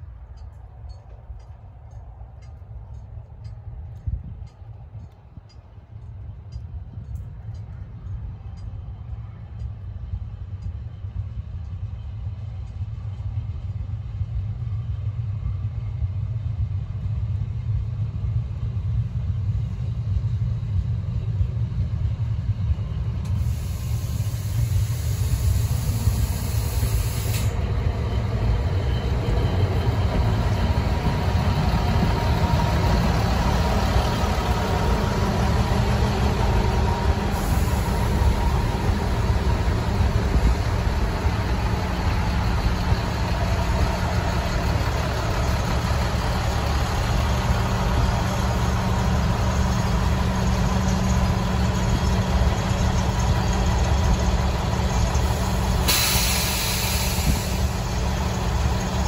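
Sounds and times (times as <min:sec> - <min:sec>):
diesel train engines rumbling: 0:00.0 - 0:59.0
hiss: 0:23.3 - 0:27.6, 0:35.6 - 0:42.4, 0:55.0 - 0:59.0.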